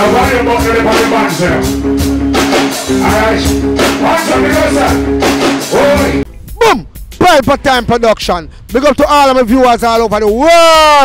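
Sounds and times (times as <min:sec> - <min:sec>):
keyboard chords: 0:00.0 - 0:07.2
live band music with steady beat: 0:00.0 - 0:07.3
person singing: 0:02.8 - 0:05.1, 0:05.7 - 0:06.3.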